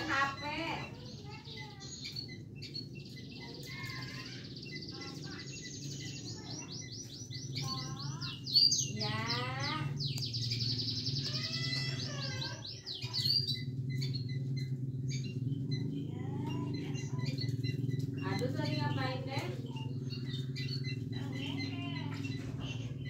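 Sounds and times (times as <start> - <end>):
songbirds chirping and trilling: 0.0 - 23.0.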